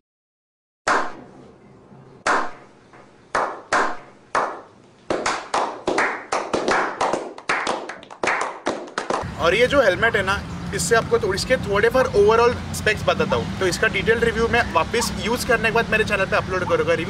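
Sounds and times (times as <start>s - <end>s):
group slow clapping: 3.3s - 9.2s.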